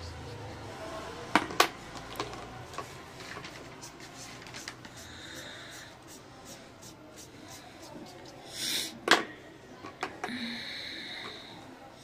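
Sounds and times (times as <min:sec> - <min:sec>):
marker scratching on paper: 0:03.5 - 0:08.9.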